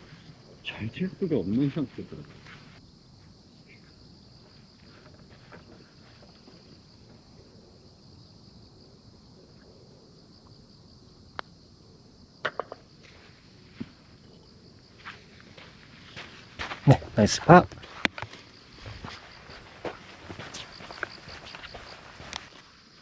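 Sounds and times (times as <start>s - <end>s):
faint insect hum: 0.0s - 23.0s
putter striking golf ball: 12.4s - 12.8s.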